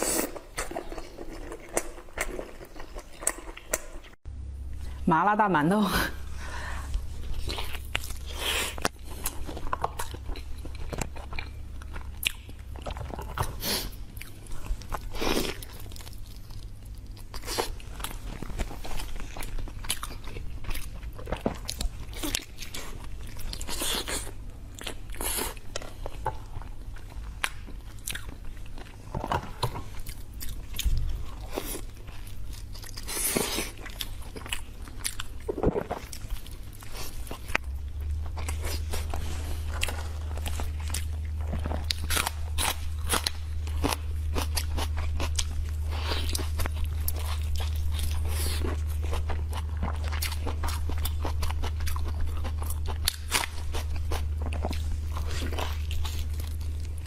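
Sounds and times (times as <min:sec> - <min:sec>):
person chewing meat: 0:00.0 - 0:04.2, 0:06.6 - 0:57.0
low steady hum: 0:00.0 - 0:57.0.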